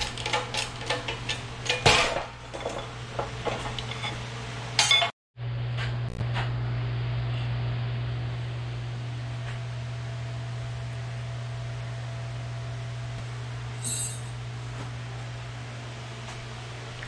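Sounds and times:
metallic clink: 0:13.8 - 0:14.3.

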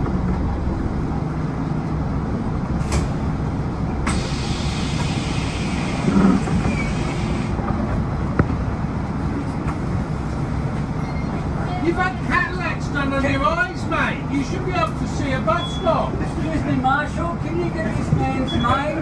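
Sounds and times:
bus engine idling: 0:00.0 - 0:19.0
air hissing: 0:04.0 - 0:07.6.

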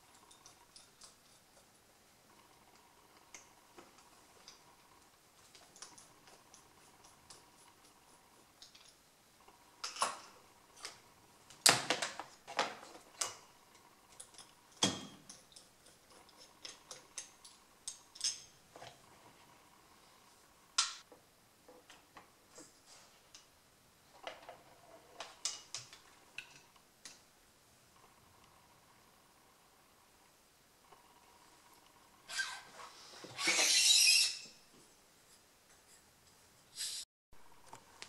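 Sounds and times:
metal parts clicking and knocking: 0:13.2 - 0:18.6.

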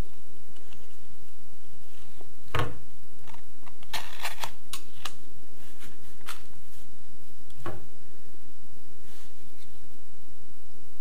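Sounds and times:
tape crackling and clicking: 0:03.2 - 0:05.2.

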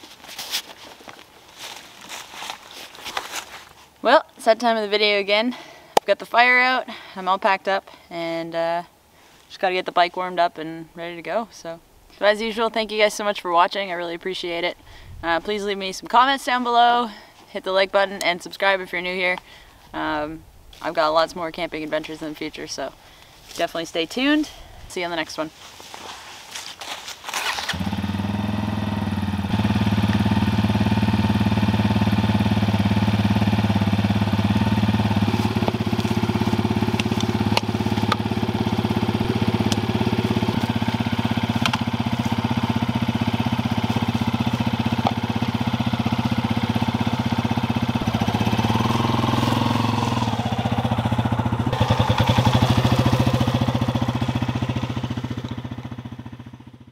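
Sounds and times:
motorcycle engine starting and idling: 0:27.4 - 0:56.9.

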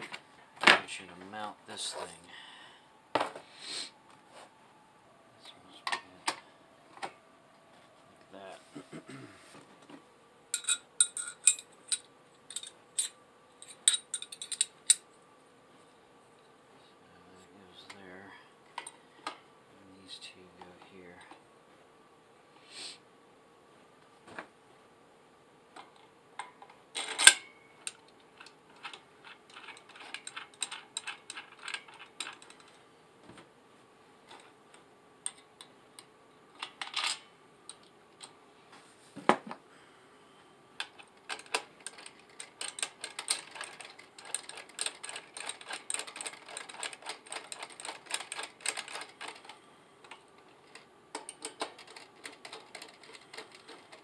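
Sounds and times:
metal parts clicking and rattling: 0:10.6 - 0:15.0, 0:27.0 - 0:32.8, 0:36.6 - 0:37.2, 0:40.8 - 0:54.0.

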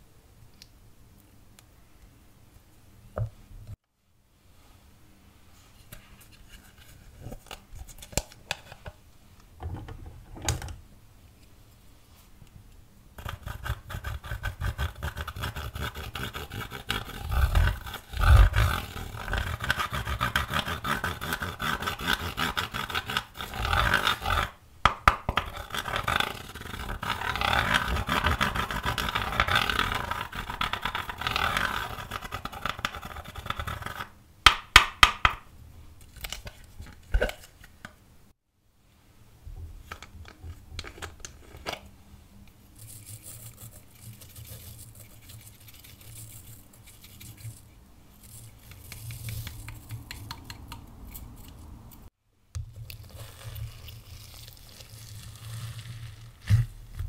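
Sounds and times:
tool scraping pressed powder: 0:13.2 - 0:34.2.

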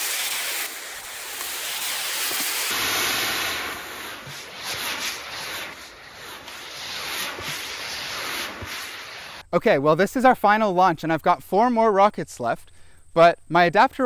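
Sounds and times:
rocket motors hissing: 0:00.0 - 0:09.4.

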